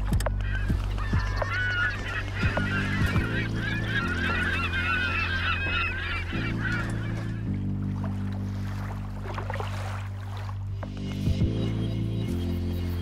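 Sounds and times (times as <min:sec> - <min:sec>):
flock of birds calling: 0:00.0 - 0:09.1
background music low chords: 0:00.0 - 0:13.0.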